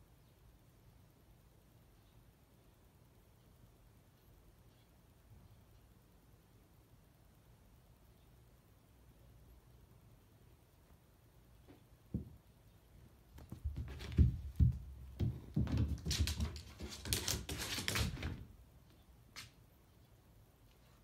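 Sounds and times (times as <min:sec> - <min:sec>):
paws scuffling and rustling: 0:13.4 - 0:18.5.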